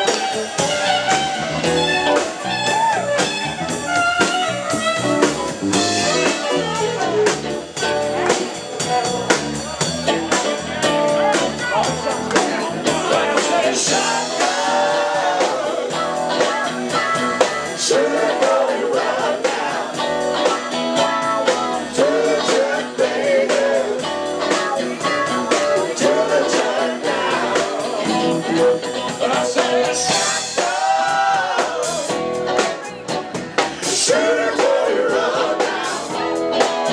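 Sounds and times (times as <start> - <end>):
saxophone: 0.0 - 7.6
drum kit: 0.0 - 36.9
electric bass: 0.0 - 36.9
man singing: 11.1 - 32.4.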